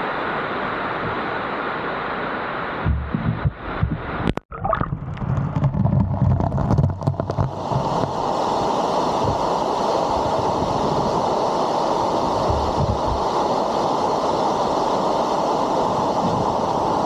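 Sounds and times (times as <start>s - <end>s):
knocks: 2.8s - 4.1s
waterfall rushing: 5.1s - 17.0s
wind buffeting microphone: 12.4s - 13.3s.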